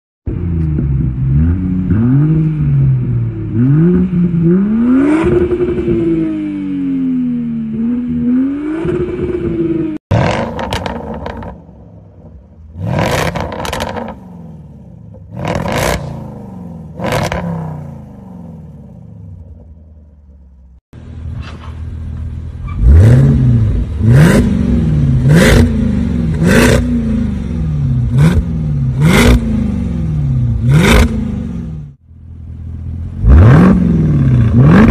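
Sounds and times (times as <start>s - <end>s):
engine revving: 0.3s - 19.6s, 22.8s - 32.0s, 33.0s - 34.9s
exhaust cracks: 10.1s - 14.2s.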